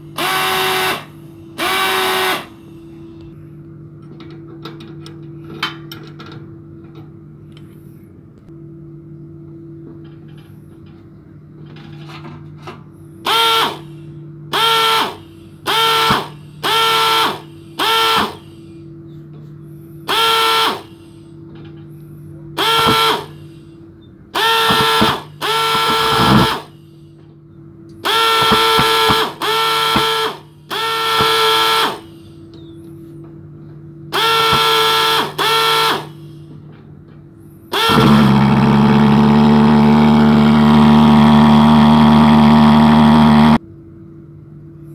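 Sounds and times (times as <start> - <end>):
pulse-jet engine running: 22.6 - 23.7, 24.3 - 27.0, 28.0 - 32.3, 34.1 - 36.5, 37.7 - 43.6.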